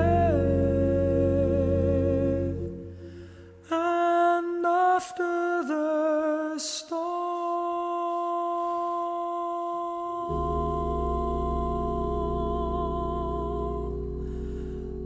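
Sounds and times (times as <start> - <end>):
voices singing low chord: 0.0 - 5.8, 10.3 - 15.0
man singing a long note: 0.0 - 15.0.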